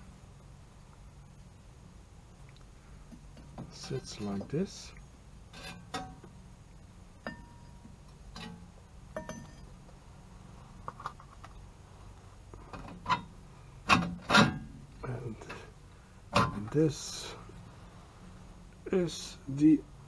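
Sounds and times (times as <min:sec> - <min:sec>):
short metallic ring: 0:07.3 - 0:07.8, 0:09.2 - 0:09.7
metal cover clicking and clinking: 0:09.2 - 0:09.7.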